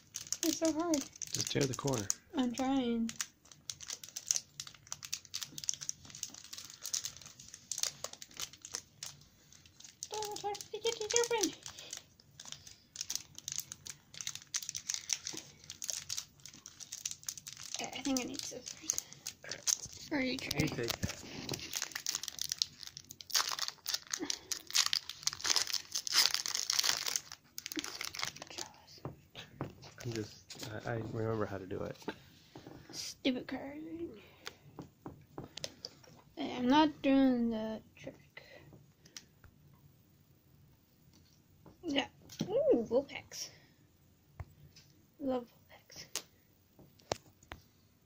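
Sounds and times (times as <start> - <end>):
plastic packaging crinkling: 0.0 - 28.9, 29.8 - 31.5.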